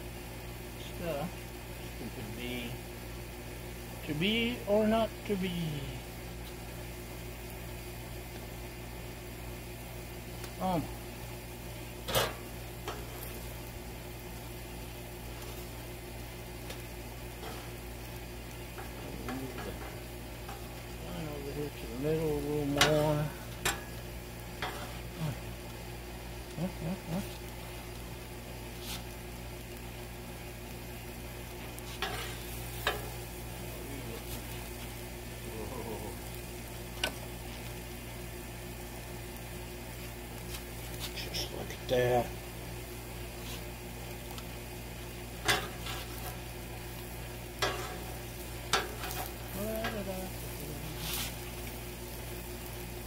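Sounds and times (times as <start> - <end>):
food sizzling on griddle: 0.0 - 53.0
metal spatula scraping griddle: 12.0 - 13.4, 17.3 - 17.8, 22.7 - 24.0, 24.6 - 25.2, 31.8 - 33.2, 45.4 - 46.4, 47.6 - 50.0, 50.9 - 51.4.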